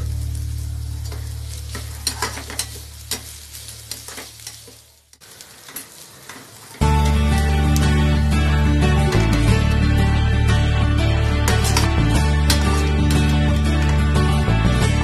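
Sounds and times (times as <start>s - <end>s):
onions sizzling in hot oil: 0.0s - 8.8s
spatula scraping a pan: 1.1s - 4.8s, 11.4s - 13.4s
background music: 6.8s - 15.0s
loud music: 6.8s - 15.0s.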